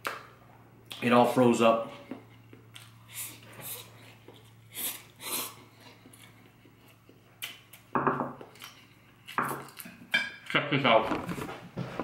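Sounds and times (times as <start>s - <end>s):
person slurping noodles: 4.6s - 5.8s.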